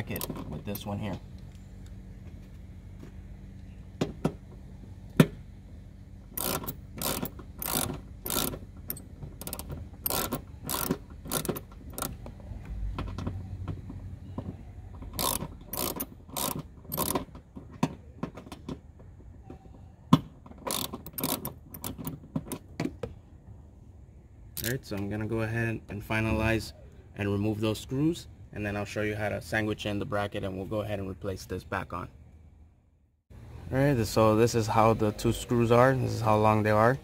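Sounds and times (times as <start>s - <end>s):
socket ratchet clicking: 6.4s - 12.2s, 15.1s - 17.4s, 20.6s - 22.2s.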